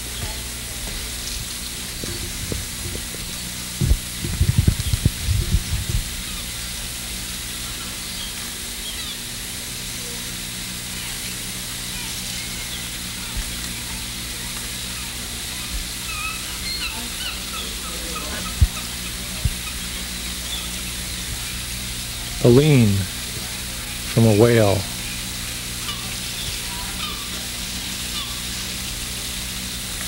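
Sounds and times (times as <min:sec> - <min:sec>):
electrical hum and hiss: 0:00.0 - 0:30.0.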